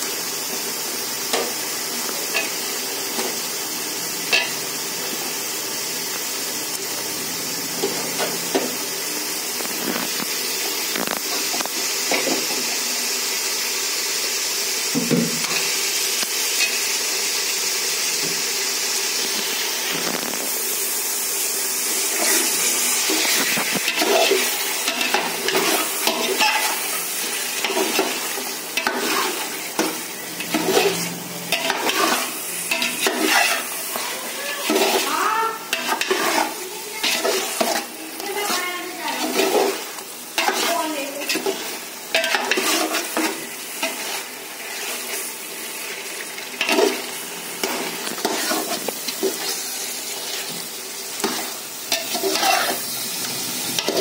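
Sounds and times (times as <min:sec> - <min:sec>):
steady sizzle: 0:00.0 - 0:54.0
metal spatula scraping pot: 0:22.2 - 0:45.2, 0:46.6 - 0:49.6, 0:51.2 - 0:52.9.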